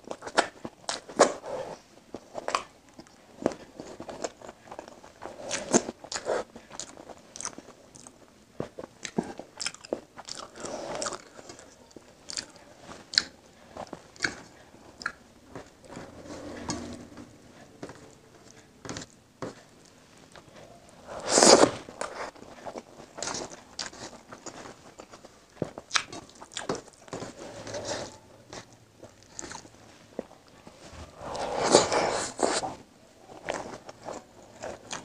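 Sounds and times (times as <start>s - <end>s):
chewing and wet mouth sounds: 0.0s - 17.0s, 21.3s - 30.3s, 33.3s - 35.0s.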